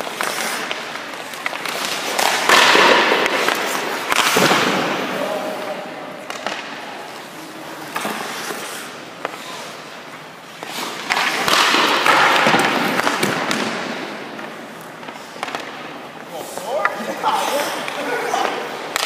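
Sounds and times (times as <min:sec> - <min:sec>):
skate blades scraping ice: 0:00.0 - 0:05.6, 0:06.3 - 0:19.0
hockey pucks striking with clacks: 0:00.0 - 0:19.0.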